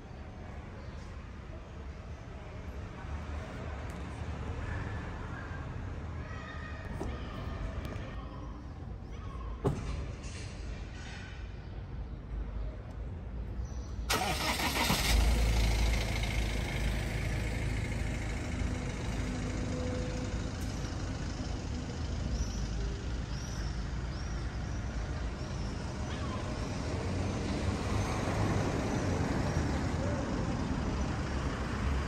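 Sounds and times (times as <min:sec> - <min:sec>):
vehicle engine rumble: 0:14.1 - 0:32.0.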